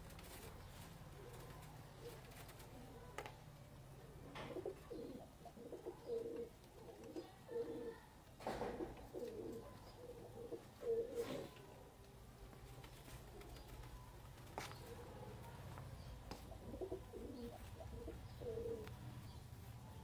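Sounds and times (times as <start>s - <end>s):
pigeons cooing: 0.0s - 3.1s, 4.0s - 12.0s, 13.0s - 19.4s
rustling: 0.0s - 3.4s, 9.1s - 20.0s.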